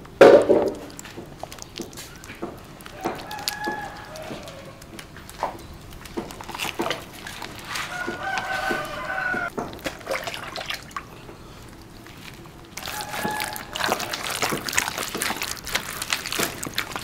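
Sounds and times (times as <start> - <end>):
rooster crowing: 2.9 - 5.0, 7.7 - 9.5, 12.8 - 14.5.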